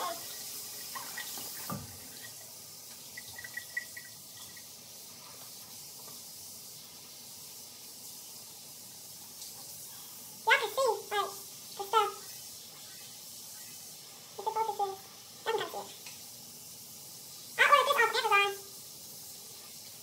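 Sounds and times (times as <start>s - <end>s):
sink tap running: 0.0s - 9.7s.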